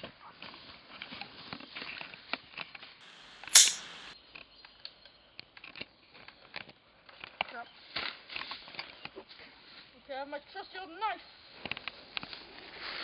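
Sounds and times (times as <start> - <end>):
gunshot: 3.0 - 4.2.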